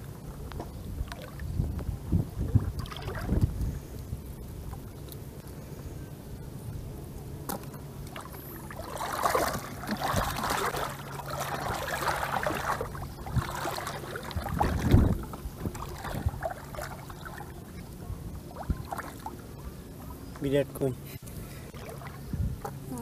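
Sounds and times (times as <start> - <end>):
shallow water splashing: 2.2 - 4.0, 7.6 - 22.8.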